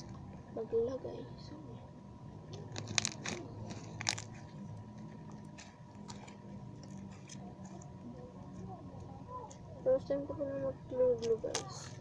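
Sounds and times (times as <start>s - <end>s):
slime crackling and popping: 2.6s - 4.4s.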